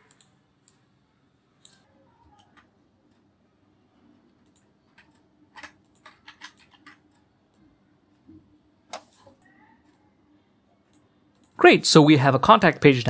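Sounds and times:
keyboard keystrokes: 0:04.4 - 0:07.1.

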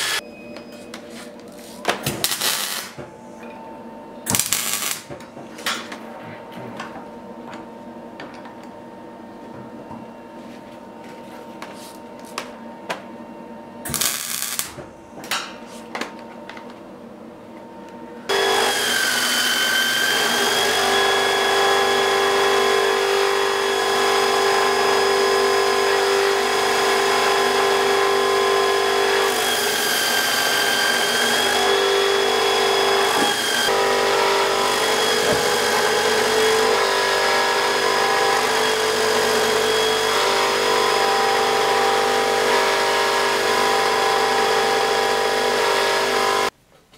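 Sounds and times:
grinder wheel whine and hiss: 0:00.0 - 0:00.2, 0:17.7 - 0:46.5.

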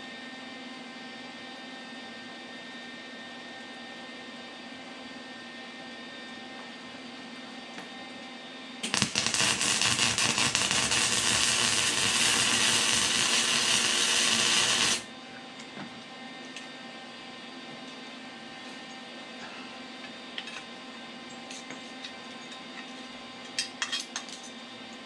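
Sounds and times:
electric arc welding crackling: 0:08.8 - 0:15.1
welding arc sputtering pops: 0:08.8 - 0:15.1.

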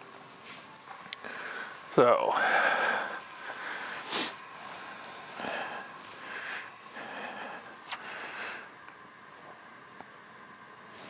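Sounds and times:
person sniffing and breathing: 0:02.4 - 0:08.8.

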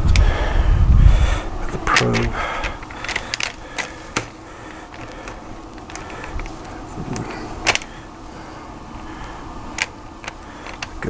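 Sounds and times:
steady background hiss: 0:00.0 - 0:11.0
sharp clicks and knocks: 0:01.8 - 0:07.9, 0:09.7 - 0:11.0.

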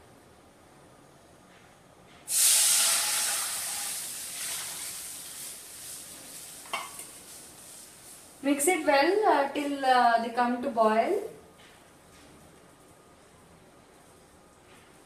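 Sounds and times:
milk hissing in hot pan: 0:02.3 - 0:08.7
milk sizzling: 0:02.3 - 0:09.2.

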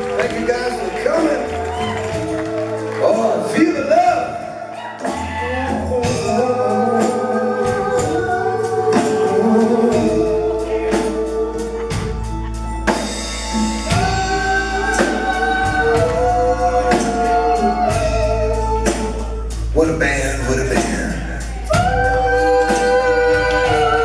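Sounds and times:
drums keeping steady beat: 0:00.0 - 0:24.0
voices singing long notes: 0:04.4 - 0:19.7, 0:21.4 - 0:24.0.

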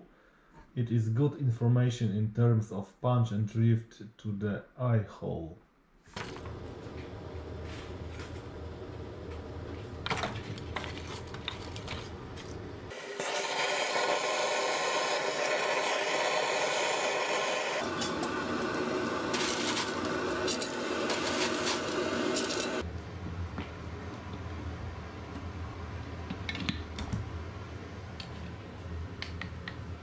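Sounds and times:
gas torch flame hissing: 0:12.9 - 0:22.8.

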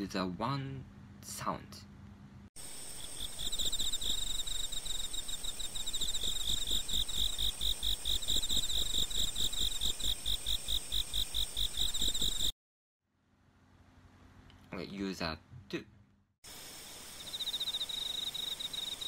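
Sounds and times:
rapid high insect chirping: 0:02.6 - 0:12.5, 0:16.5 - 0:19.0.

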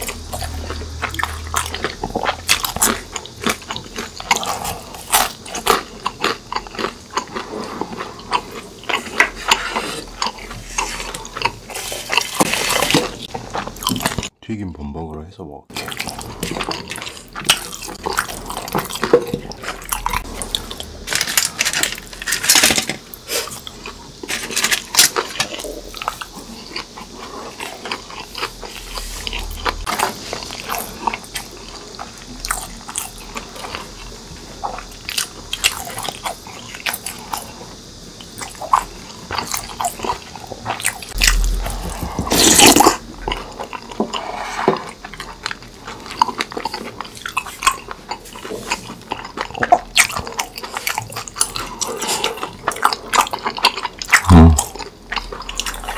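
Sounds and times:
crunching and chewing: 0:00.0 - 0:14.3, 0:15.7 - 0:55.9
loud noise: 0:41.1 - 0:43.6.

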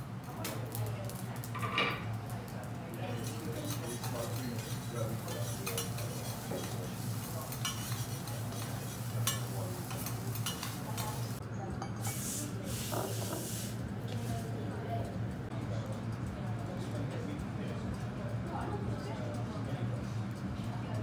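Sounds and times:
light sizzle: 0:00.0 - 0:11.4, 0:12.0 - 0:15.5
metal spatulas scraping griddle: 0:03.2 - 0:11.3.

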